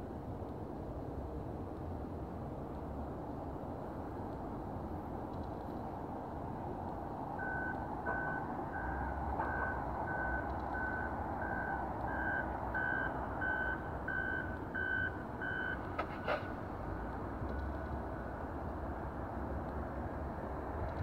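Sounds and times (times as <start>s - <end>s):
back-up alarm beeping: 7.4s - 15.8s.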